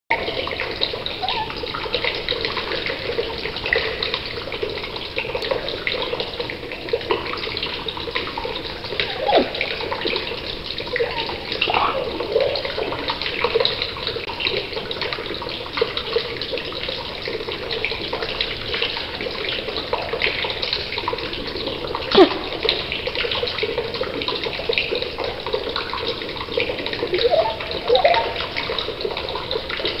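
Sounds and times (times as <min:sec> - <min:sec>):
budgie warbling: 0:01.2 - 0:01.7, 0:09.0 - 0:09.9, 0:10.9 - 0:12.8, 0:22.1 - 0:22.6, 0:27.0 - 0:28.6.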